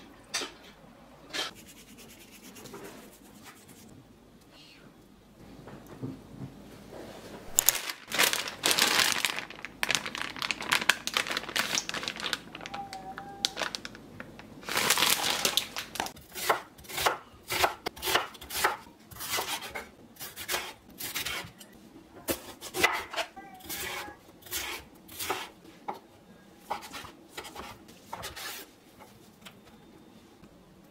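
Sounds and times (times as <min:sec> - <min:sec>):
food packaging crinkling: 0:07.5 - 0:16.2.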